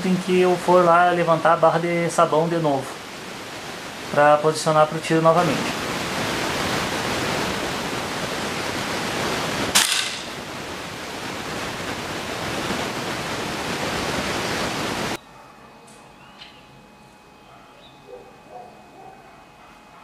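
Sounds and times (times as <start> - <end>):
steady hiss: 0.0 - 15.2
air rifle shot: 9.7 - 10.4.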